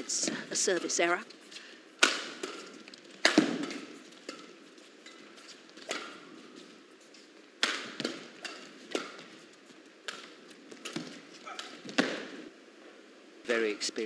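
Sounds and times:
badminton racket hitting shuttlecock: 0.0 - 6.3, 7.6 - 9.3, 10.0 - 12.4.

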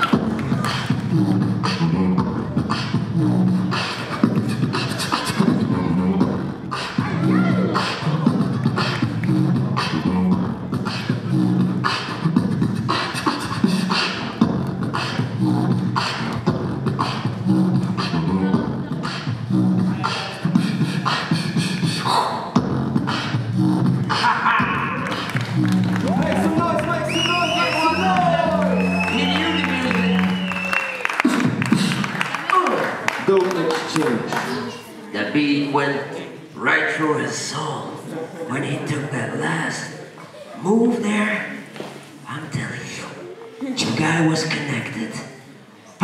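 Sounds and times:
beatboxing through a microphone: 0.0 - 36.1.

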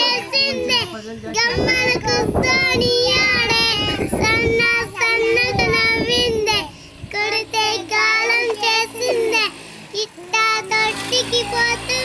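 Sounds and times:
girls singing unaccompanied: 0.0 - 12.0.

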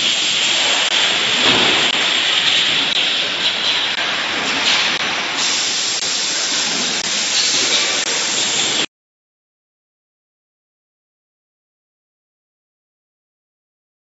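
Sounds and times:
packing machine hissing: 0.0 - 8.9.

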